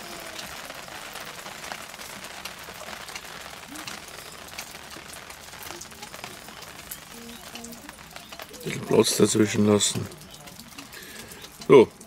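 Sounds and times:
rain drops ticking on a surface: 0.0 - 12.0
rain hiss: 0.0 - 12.0.

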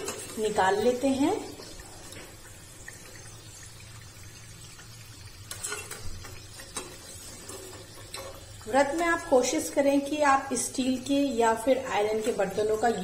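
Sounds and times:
oil sizzling in a pan: 0.0 - 13.0
metal spoon clinking on pan: 5.5 - 6.0.

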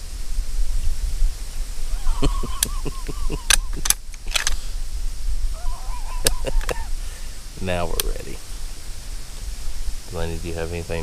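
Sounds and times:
people laughing: 1.9 - 4.0, 5.6 - 7.2.

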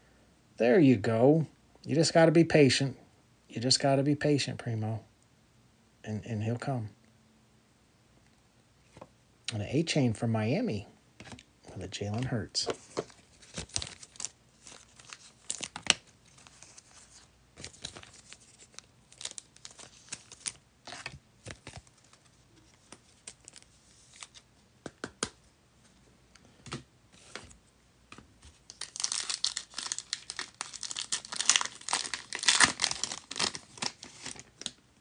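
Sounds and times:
wrapper crinkling: 12.9 - 24.4, 28.7 - 34.8
foil pack tearing open: 28.7 - 34.7.

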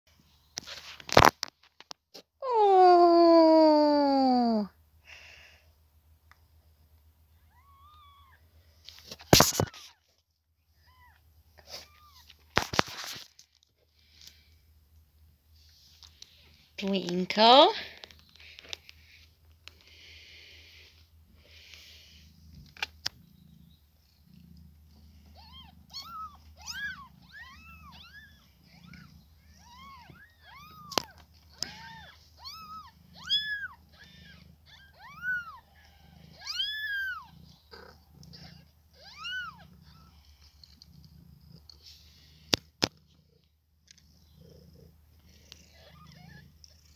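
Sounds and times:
cat purring: 20.0 - 30.0, 32.5 - 46.9
kittens mewing: 24.8 - 40.8.

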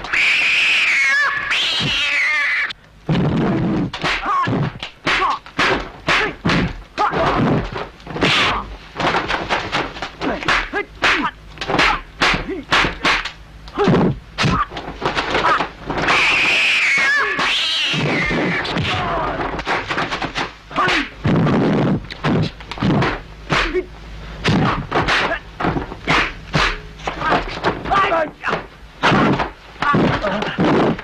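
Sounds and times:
short cries: 0.0 - 2.8, 15.4 - 19.4
high cat-like yowls: 0.1 - 2.7, 16.1 - 19.2
punch and kick impact effects: 4.0 - 7.6.

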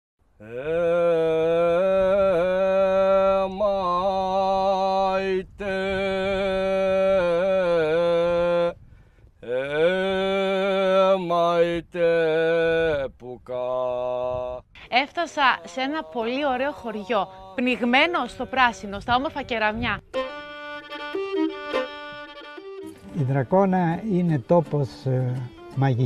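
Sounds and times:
men singing in unison: 0.4 - 8.8, 9.4 - 19.5.

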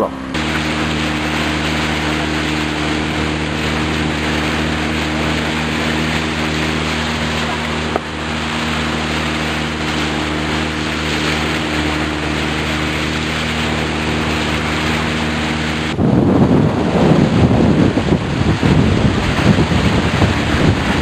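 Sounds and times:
boat motor running: 0.0 - 21.0
water rushing: 0.0 - 21.0
wind buffeting microphone: 0.3 - 21.0.

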